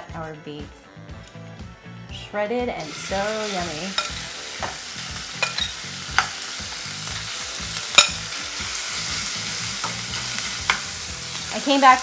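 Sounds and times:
beef sizzling in frying pan: 0:02.8 - 0:12.0
metal tongs clicking: 0:05.4 - 0:06.3.

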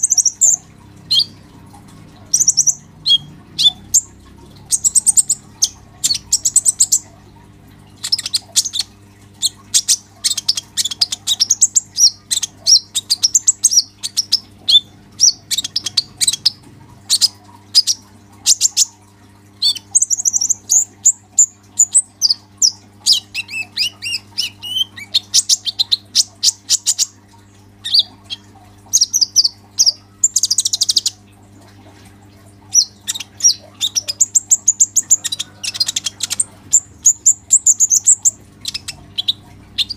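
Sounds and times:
bird twittering chirps and trills: 0:00.0 - 0:31.2, 0:32.6 - 0:39.9.

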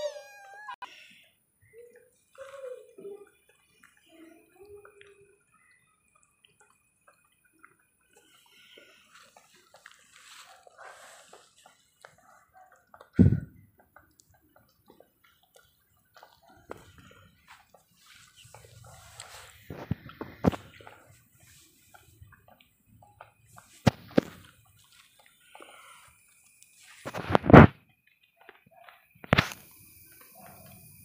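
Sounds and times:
dry leaves rustling under paws: 0:09.1 - 0:11.6, 0:18.0 - 0:21.8
loud low thump: 0:13.2 - 0:13.5.

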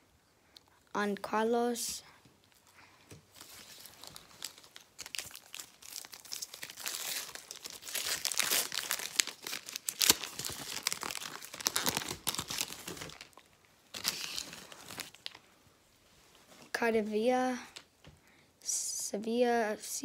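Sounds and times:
wrapper crinkling and tearing: 0:03.3 - 0:15.4.

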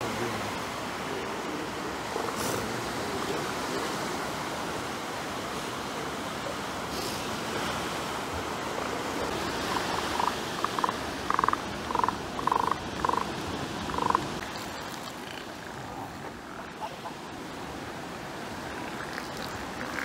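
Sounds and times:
surf: 0:00.0 - 0:20.0
elephant seals croaking: 0:08.6 - 0:17.5, 0:18.6 - 0:20.0.

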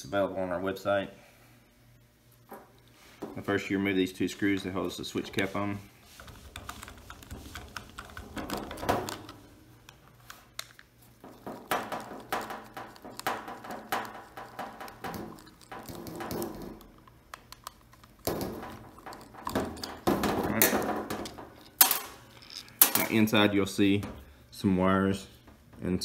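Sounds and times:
screwdriver clicking in screw heads: 0:06.5 - 0:09.3.

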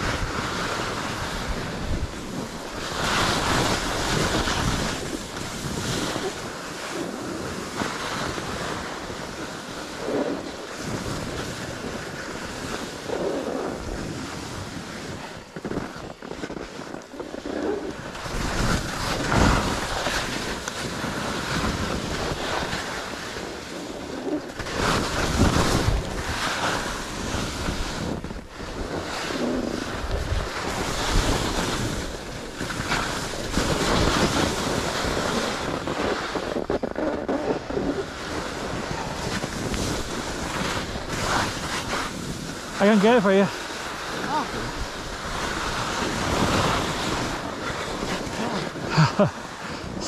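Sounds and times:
skis scraping over snow: 0:00.0 - 0:50.0
wind on microphone: 0:00.0 - 0:50.0.

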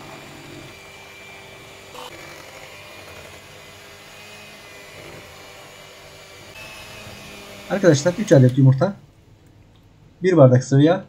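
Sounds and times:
electric hand mixer whirring: 0:00.0 - 0:08.8.

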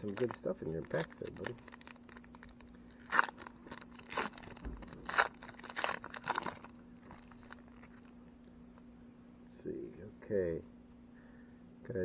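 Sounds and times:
plastic wrapper crinkling and tearing: 0:00.0 - 0:08.2.

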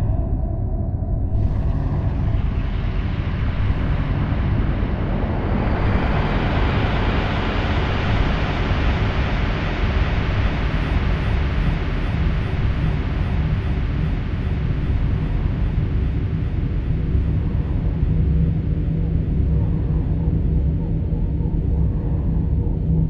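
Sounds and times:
low drone rumble: 0:00.0 - 0:23.0
rushing hiss of noise: 0:02.0 - 0:15.9.

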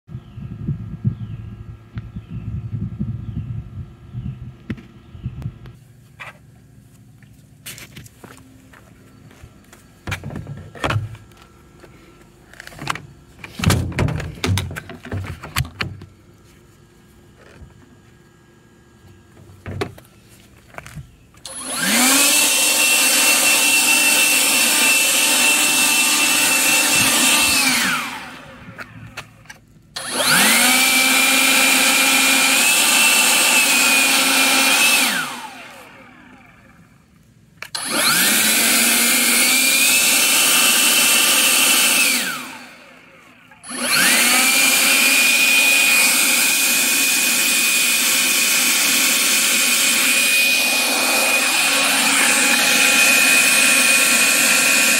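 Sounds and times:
leaf blower whining: 0:07.7 - 0:54.9.

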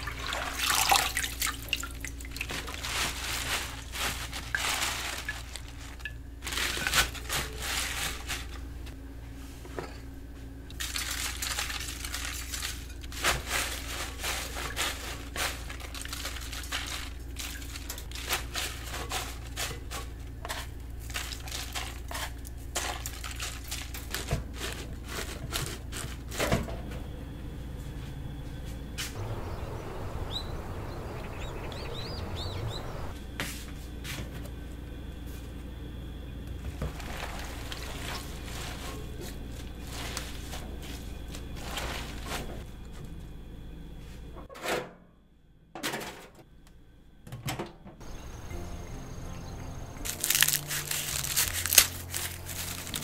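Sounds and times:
wet leaves rustling: 0:00.0 - 0:08.6, 0:10.8 - 0:20.0, 0:29.2 - 0:33.1, 0:36.9 - 0:42.5, 0:50.0 - 0:53.0.

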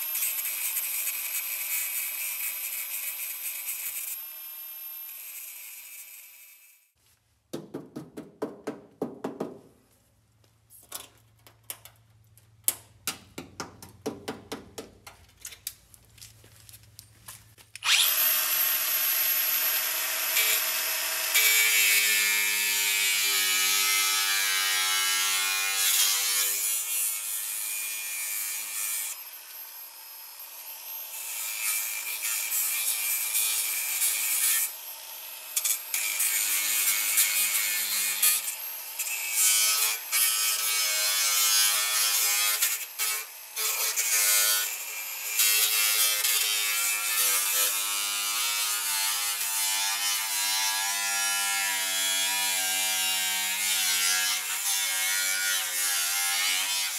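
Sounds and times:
angle grinder motor whine: 0:00.0 - 0:06.8, 0:17.8 - 0:24.2, 0:28.5 - 0:32.2, 0:34.4 - 0:40.1.

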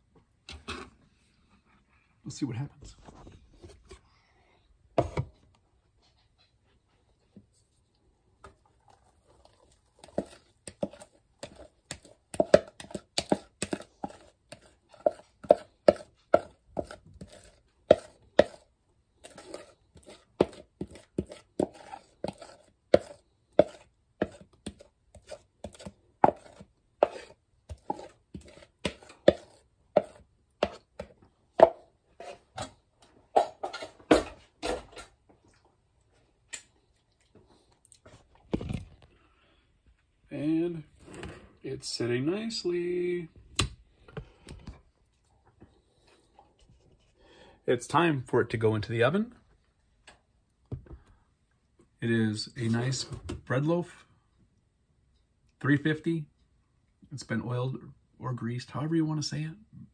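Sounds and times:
spatula scraping and tapping bowl: 0:05.0 - 0:05.4, 0:08.4 - 0:32.8, 0:33.4 - 0:35.1.

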